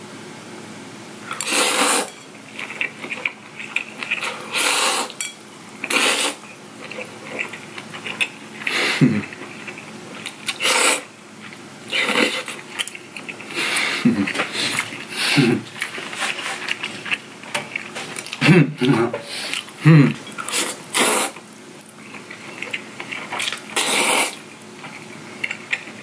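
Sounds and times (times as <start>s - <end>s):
noodles slurped: 1.3s - 5.2s, 5.8s - 11.1s, 19.3s - 21.4s, 22.0s - 26.0s
quiet chewing: 1.3s - 5.2s, 5.8s - 26.0s.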